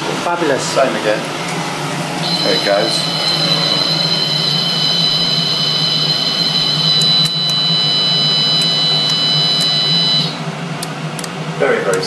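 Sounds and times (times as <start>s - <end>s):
machine hum and high whine: 0.0s - 12.0s
micro switches ticking: 6.8s - 11.3s.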